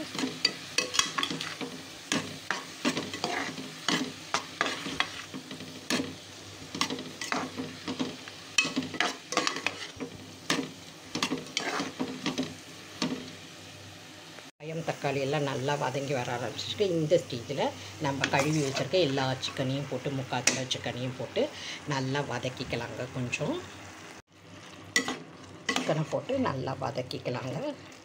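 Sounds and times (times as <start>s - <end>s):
food sizzling in oil: 0.0s - 28.0s
ladle scraping a metal pot: 8.6s - 10.0s, 11.2s - 12.4s.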